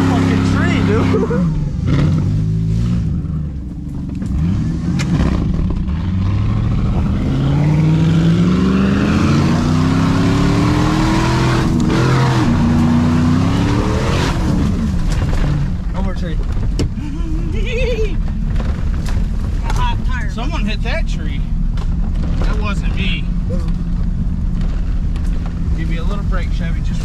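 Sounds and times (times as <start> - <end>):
truck engine accelerating: 0.0 - 27.0.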